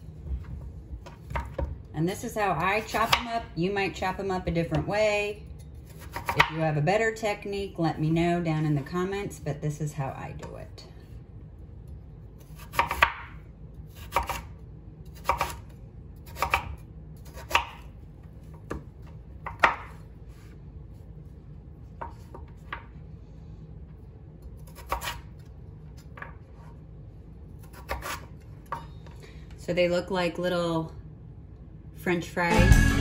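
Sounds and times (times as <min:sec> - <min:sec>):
knife slicing sweet potato: 0:05.8 - 0:06.6, 0:12.4 - 0:13.2, 0:13.9 - 0:17.9, 0:24.6 - 0:25.4, 0:27.6 - 0:28.4.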